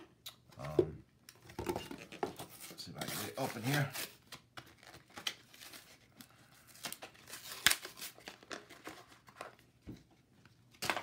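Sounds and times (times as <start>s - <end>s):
package crinkling and tearing: 3.0s - 9.6s.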